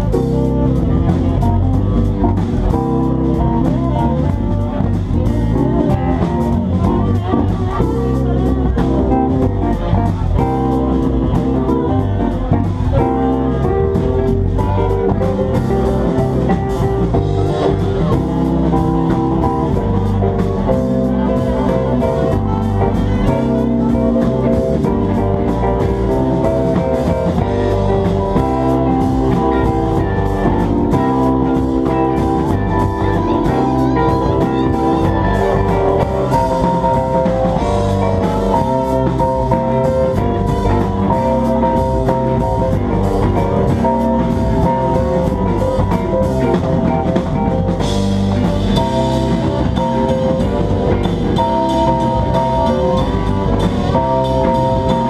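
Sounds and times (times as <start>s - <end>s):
drum kit: 0.0s - 55.0s
electric guitar: 0.0s - 55.0s
keyboard: 0.0s - 55.0s.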